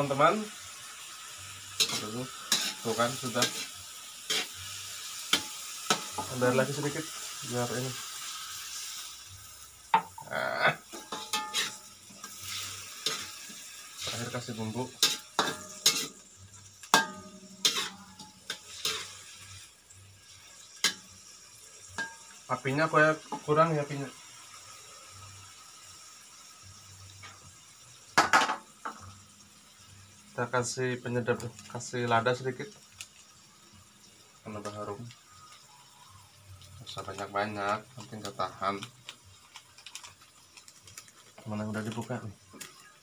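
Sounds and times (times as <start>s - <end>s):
fish sizzling in a wok: 0.0s - 43.0s
metal spoon scraping a pan: 1.6s - 7.3s, 10.9s - 19.7s, 22.0s - 22.4s
cookware clattering: 10.9s - 12.4s, 15.0s - 16.2s, 16.9s - 19.1s, 22.0s - 22.3s, 28.2s - 29.0s.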